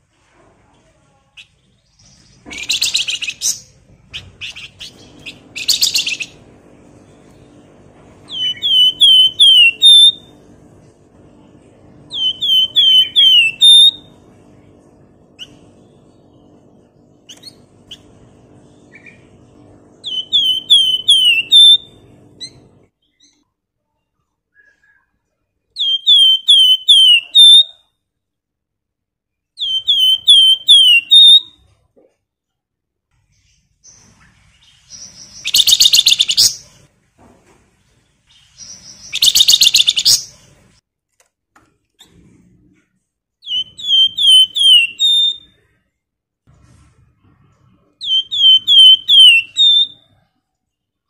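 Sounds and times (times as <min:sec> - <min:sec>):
faint low hum: 0:00.0 - 0:28.4
bird harsh chattering: 0:02.5 - 0:06.4, 0:38.8 - 0:40.3.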